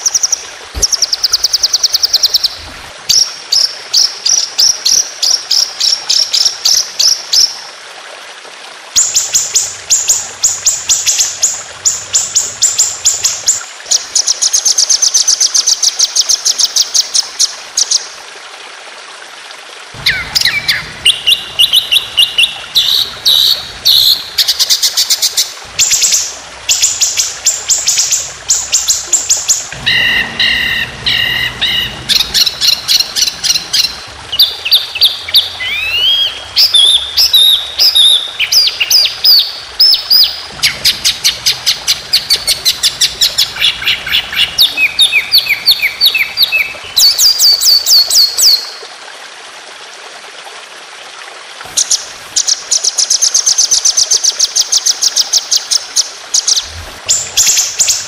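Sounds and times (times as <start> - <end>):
songbird trilling: 29.8 - 48.6.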